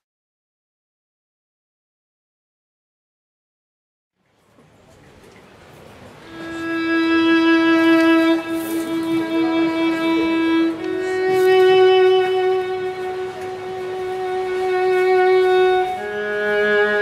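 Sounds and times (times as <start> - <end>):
violin playing long notes: 6.2 - 17.0.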